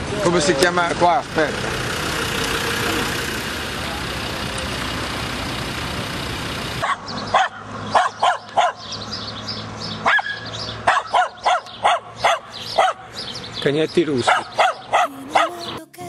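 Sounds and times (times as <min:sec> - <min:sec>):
dogs barking in sharp yaps: 0:06.8 - 0:09.0, 0:10.0 - 0:13.1, 0:14.2 - 0:15.5.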